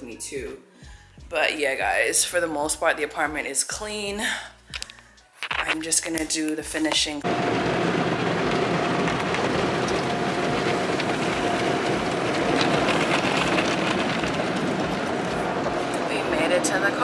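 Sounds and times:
car wash water spray on car: 0:07.2 - 0:17.0.

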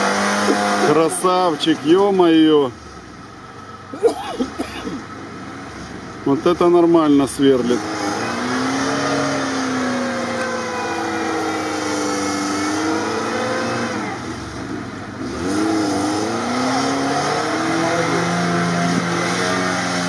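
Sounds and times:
car engine revving hard: 0:00.0 - 0:02.0, 0:07.1 - 0:20.0.

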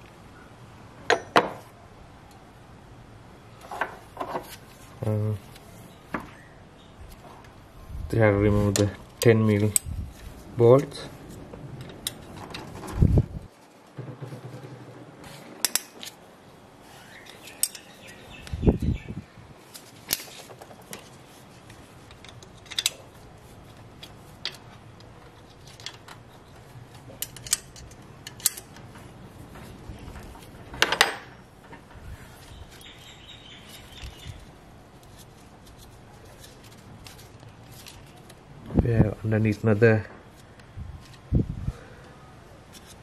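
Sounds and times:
louder metallic knock: 0:14.0 - 0:15.1.

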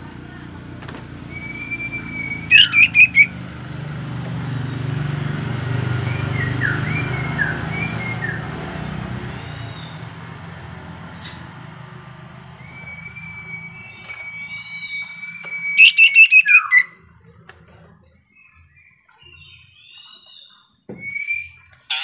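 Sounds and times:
songbird whistling and chirping: 0:01.2 - 0:03.4, 0:05.8 - 0:17.2, 0:18.1 - 0:22.0.

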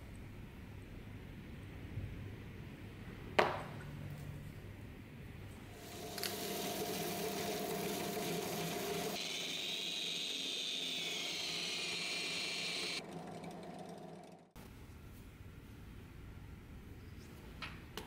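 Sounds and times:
angle grinder high-pitched whine: 0:05.8 - 0:14.4
machines winding down: 0:05.8 - 0:14.6
drill press sanding ring: 0:05.9 - 0:14.4.

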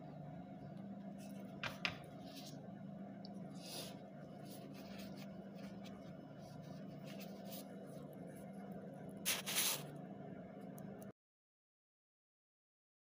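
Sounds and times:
steady low hum: 0:00.0 - 0:11.2
plastic gloves crinkling: 0:09.3 - 0:09.8.

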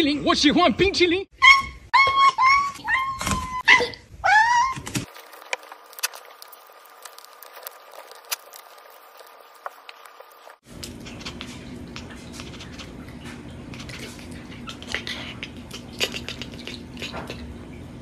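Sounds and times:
cat eating and licking: 0:05.1 - 0:17.6.

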